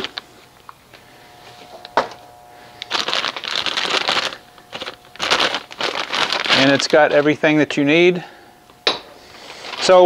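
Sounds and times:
plastic bag crinkling: 0.0 - 0.3, 2.5 - 8.2, 9.4 - 10.0.

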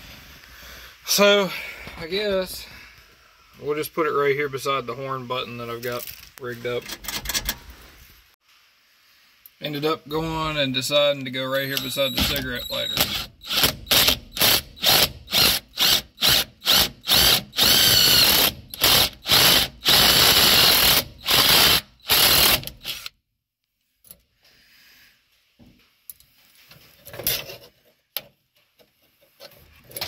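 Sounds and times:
cordless drill boring: 12.2 - 23.1.

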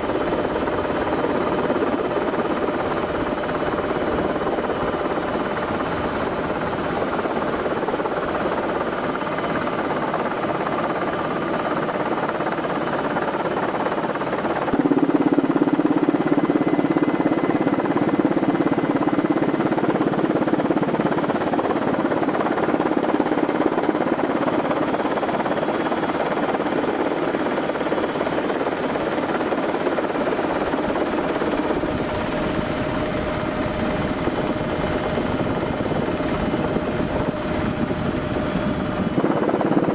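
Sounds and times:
aircraft engines droning: 30.6 - 39.9.

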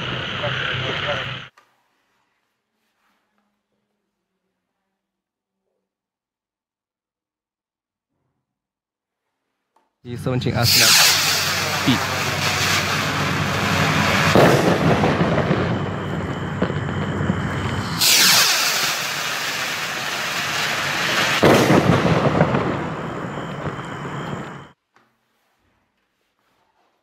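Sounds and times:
firework rockets hissing: 10.2 - 24.8.

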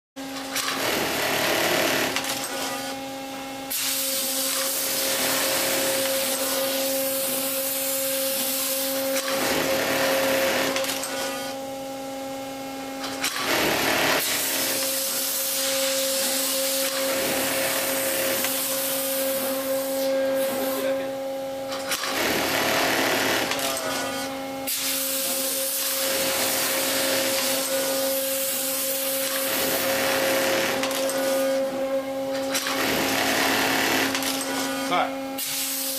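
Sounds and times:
steady machine hum: 0.2 - 35.9
mechanical stitching noise: 0.5 - 2.7, 8.4 - 11.4, 13.2 - 18.7, 21.8 - 24.0, 28.7 - 31.4, 32.4 - 34.7.

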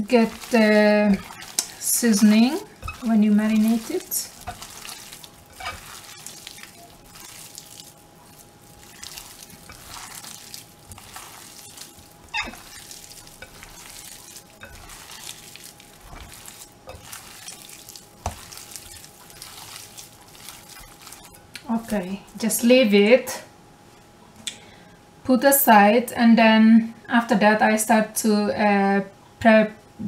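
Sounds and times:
hands squelching wet meat: 0.0 - 22.4.

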